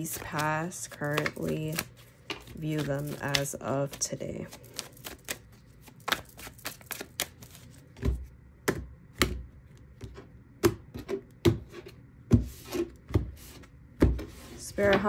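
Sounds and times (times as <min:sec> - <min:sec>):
card stacks slapping on a desk: 0:00.0 - 0:05.4
cards being shuffled: 0:00.0 - 0:08.2.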